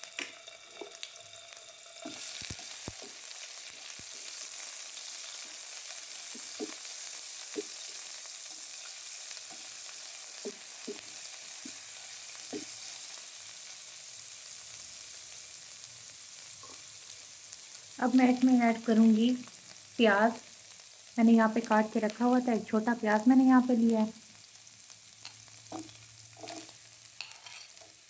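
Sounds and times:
paste sizzling in hot oil: 0.0 - 28.0.

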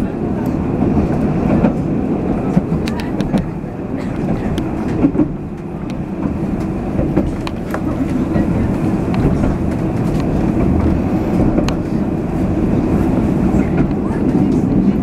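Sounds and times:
tram wheels rumbling on rail: 0.0 - 15.0.

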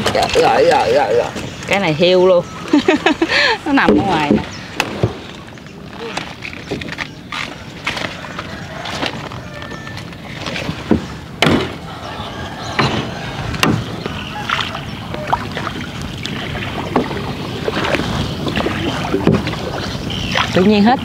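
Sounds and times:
oars sloshing in water: 0.0 - 21.0
sharp knocks on boat: 3.8 - 5.3, 10.5 - 11.8, 12.8 - 14.7, 16.3 - 19.6.

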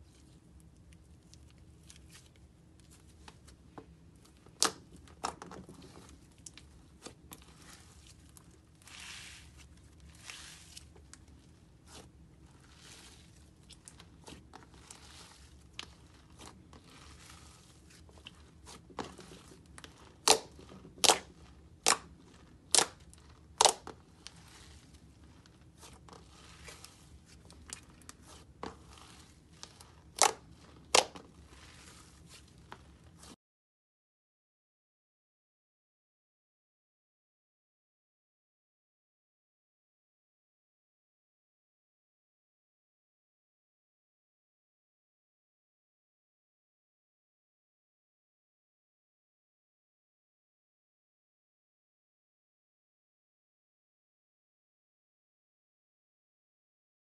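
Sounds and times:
slime squishing: 0.0 - 33.4.

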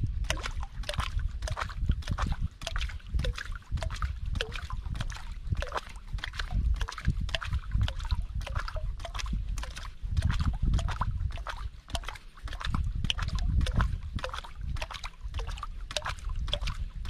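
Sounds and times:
small splashes and drips: 0.0 - 17.0
steady low rumble: 0.0 - 17.0
water lapping against hull: 0.0 - 17.0.

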